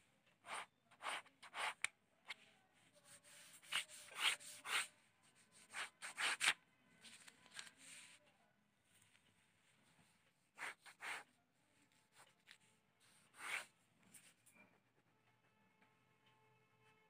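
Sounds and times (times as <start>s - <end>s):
pen scratching across paper: 0.4s - 1.9s, 3.1s - 6.6s, 10.6s - 11.3s, 13.1s - 14.3s.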